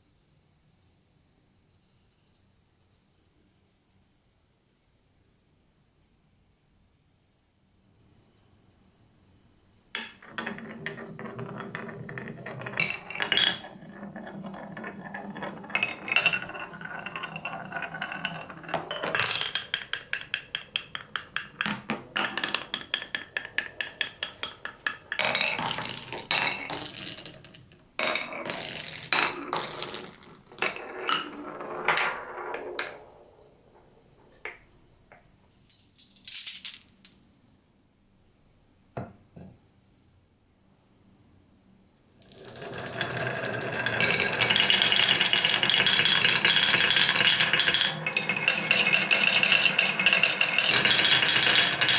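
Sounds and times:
marble clacking quickly: 10.0s - 31.8s, 42.2s - 51.9s
marble rolling on wood: 10.0s - 35.2s, 42.2s - 51.9s
marble clicks and knocks: 10.0s - 37.3s, 42.2s - 51.9s.

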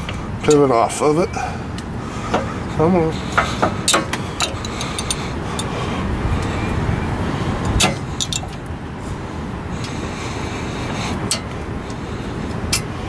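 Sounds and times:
low rumble: 1.3s - 13.0s
metal clicks and clinks: 7.7s - 8.6s.

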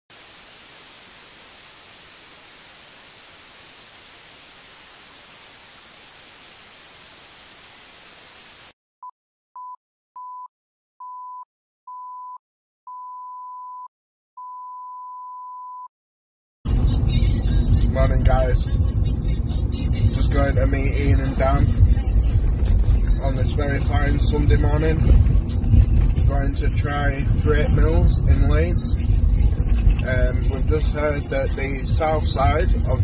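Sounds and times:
white noise static hiss: 0.1s - 8.7s.

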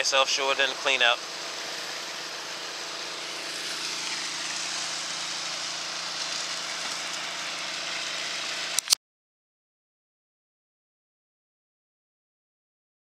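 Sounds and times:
water pump engine running: 0.0s - 9.0s
sharp click: 8.7s - 9.0s.

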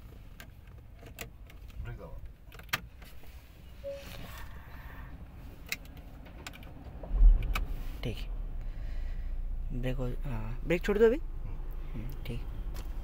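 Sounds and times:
car engine starting and idling: 0.0s - 13.0s.

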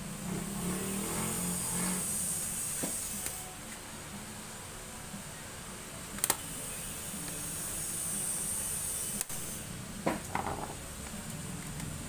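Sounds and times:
steady hiss: 0.0s - 10.2s
plastic clips snapping: 6.2s - 6.4s.

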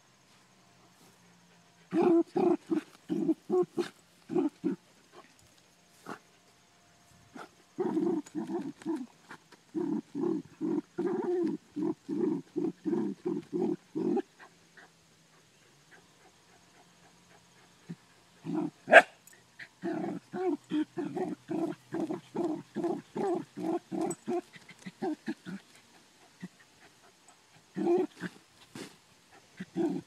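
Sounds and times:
dog barking: 18.9s - 19.2s.

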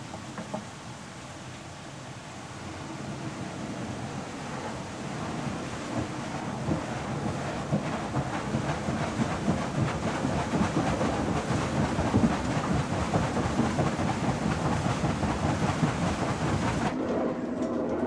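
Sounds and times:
faint steady hum: 0.0s - 10.5s
water rushing through waterwheel: 0.0s - 17.0s.

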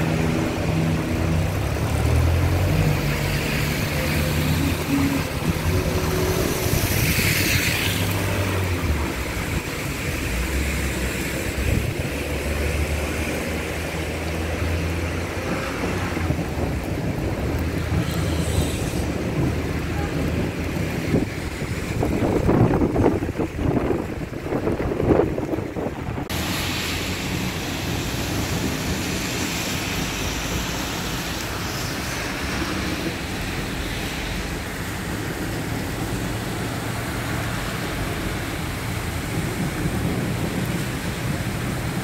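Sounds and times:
car swishing through water: 0.0s - 42.0s
rain hissing: 0.0s - 42.0s
tyres on wet road: 0.0s - 42.0s
wind buffeting microphone: 4.7s - 12.3s, 14.6s - 26.5s.

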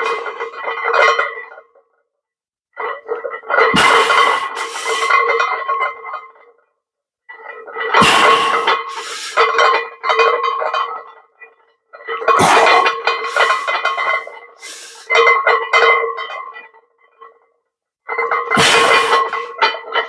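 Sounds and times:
barbell plates clanking: 0.0s - 1.6s, 2.8s - 6.4s, 7.3s - 16.8s, 18.1s - 20.0s.

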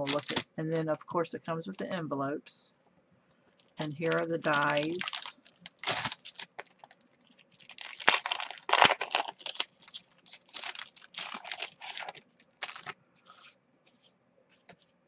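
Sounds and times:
plastic packaging crinkling: 0.0s - 0.6s, 3.5s - 15.0s.

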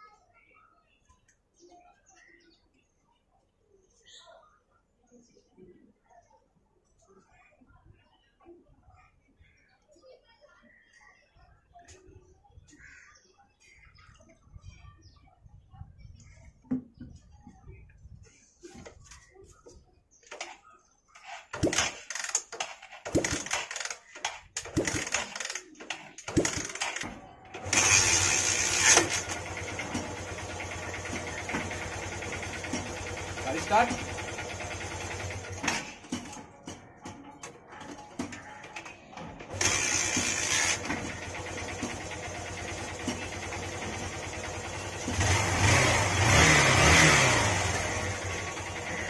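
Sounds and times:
motorcycle engine starting: 21.2s - 36.8s, 38.2s - 49.0s
kick-start lever clatter: 21.6s - 30.3s.

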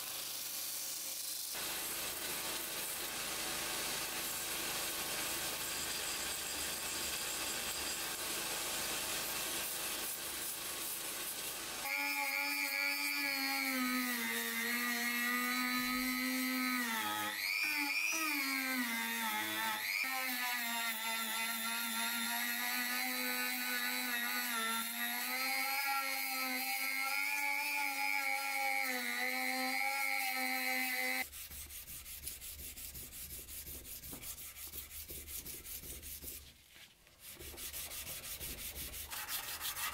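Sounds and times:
belt grinder sanding steel: 10.9s - 36.5s, 37.2s - 39.9s
hand sanding rub: 26.8s - 39.9s.

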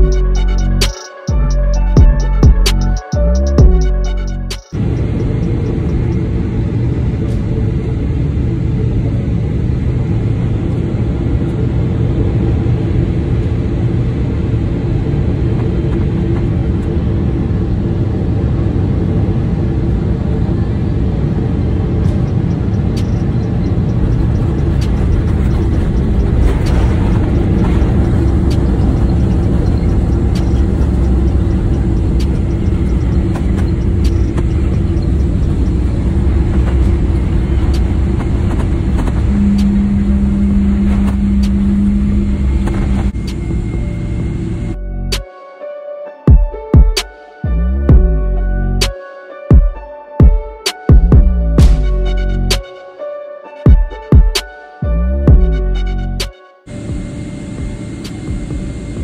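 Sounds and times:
airliner cabin engine rumble: 3.9s - 45.2s, 55.4s - 59.0s.

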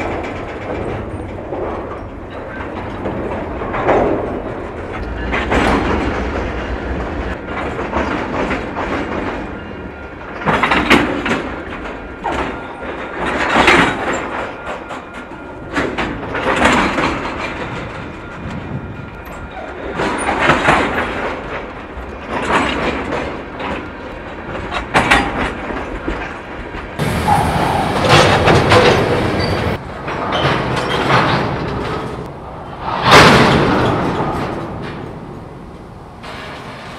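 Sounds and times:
train couplers banging: 0.0s - 32.4s
train wheels clattering on rails: 0.0s - 36.9s.

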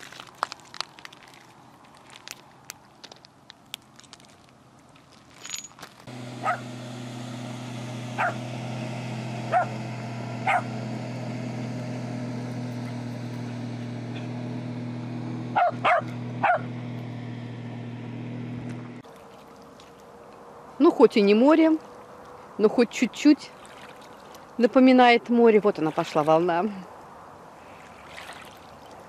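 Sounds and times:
motorboat engine drone: 6.1s - 20.0s
small dog barking: 6.4s - 6.7s, 8.2s - 8.4s, 9.5s - 9.8s, 10.4s - 10.7s, 15.6s - 16.7s.

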